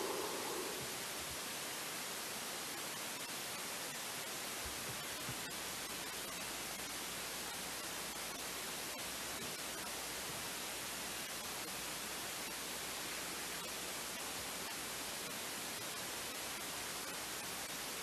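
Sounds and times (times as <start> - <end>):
faint low hum: 0.0 - 1.5
background hiss: 0.0 - 18.0.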